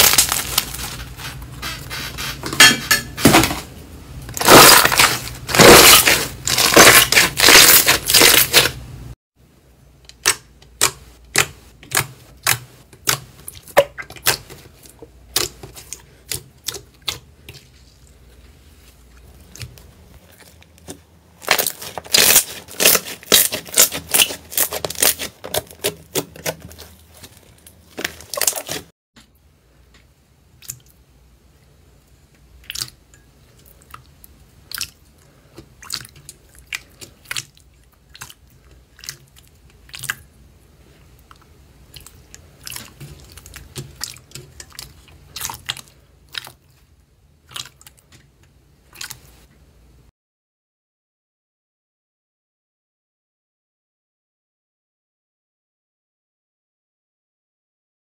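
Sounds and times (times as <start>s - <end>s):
slime crackling and popping: 0.0s - 0.8s, 4.4s - 8.8s, 20.4s - 28.8s.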